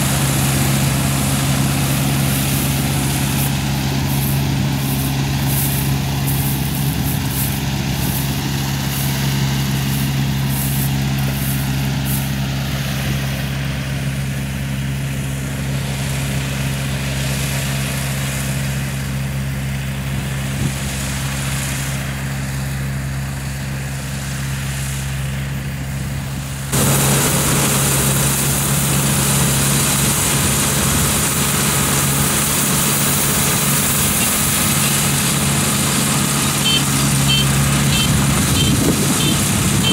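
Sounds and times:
combine harvester engine hum: 0.0s - 39.9s
machinery clatter: 26.7s - 39.9s.

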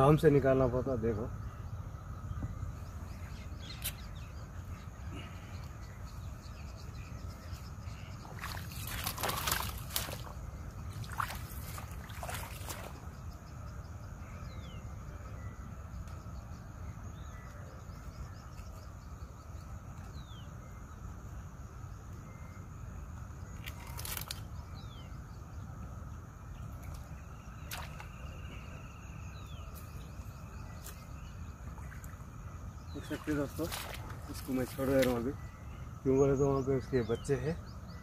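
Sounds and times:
wind rumble on microphone: 1.3s - 14.2s.

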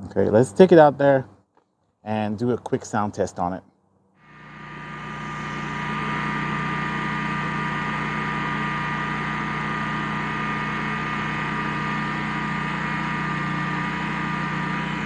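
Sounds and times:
generator engine running: 4.2s - 15.0s.

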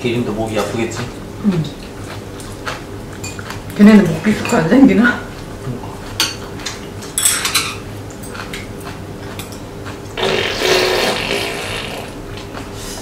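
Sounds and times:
noisy eating: 0.0s - 13.0s
chopsticks and spoons clicking on bowls: 2.4s - 4.7s, 6.1s - 10.0s.

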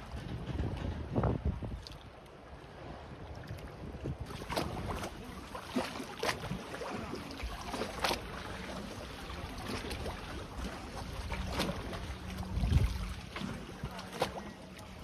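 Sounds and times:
low wind rumble: 0.0s - 5.6s, 6.4s - 14.1s
water lapping against boats: 0.0s - 15.0s
sharp water slaps: 4.2s - 8.4s.

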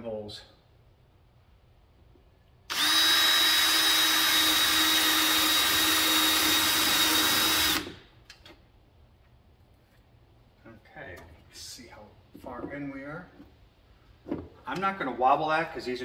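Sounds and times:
cordless drill drilling plastic: 2.7s - 8.0s.

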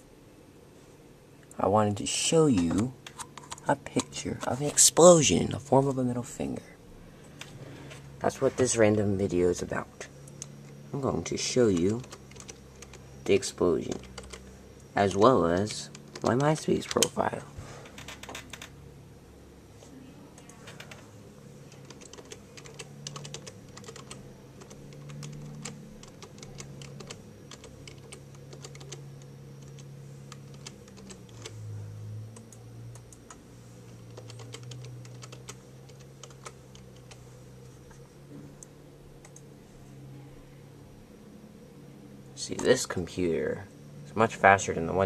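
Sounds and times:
low steady hum: 0.0s - 45.0s.

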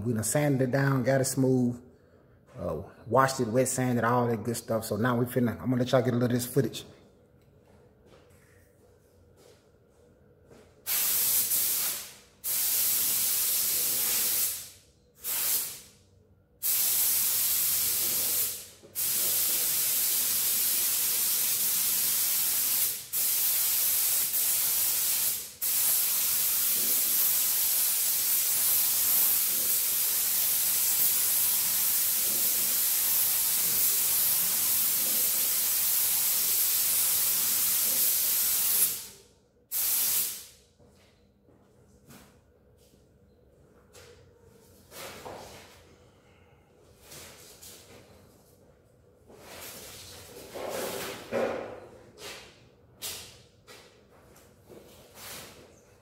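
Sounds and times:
spray gun air hissing: 10.9s - 15.9s, 16.6s - 40.5s.

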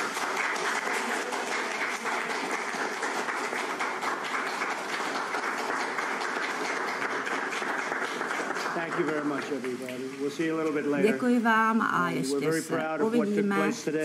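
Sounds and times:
crowd applauding: 0.0s - 10.7s.

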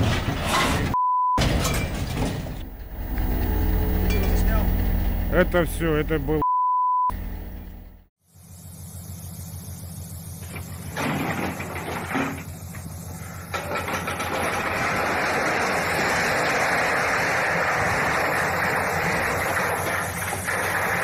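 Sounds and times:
diesel locomotive engine rumbling: 1.4s - 6.4s, 7.1s - 21.0s
earth spilling from railcar: 10.7s - 21.0s.

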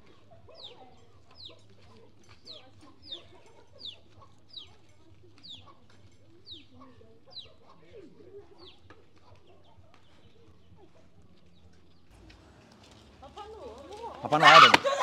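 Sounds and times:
chickens clucking: 0.0s - 11.0s, 14.2s - 15.0s.

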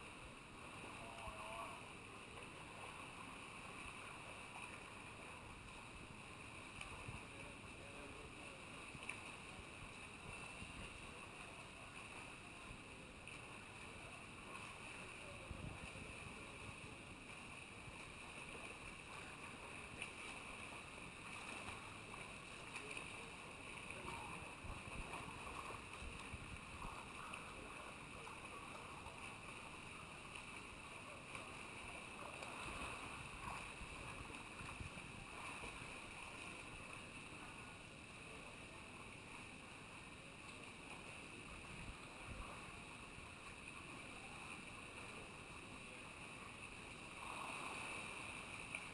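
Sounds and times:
distant splashing of swimmers: 0.0s - 48.9s
steady hiss: 0.0s - 48.9s.

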